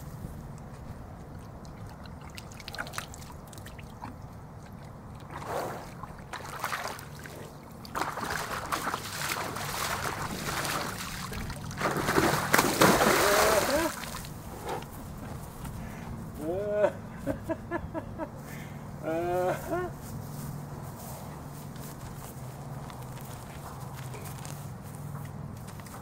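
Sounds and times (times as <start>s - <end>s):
water sloshing and splashing: 1.2s - 14.6s.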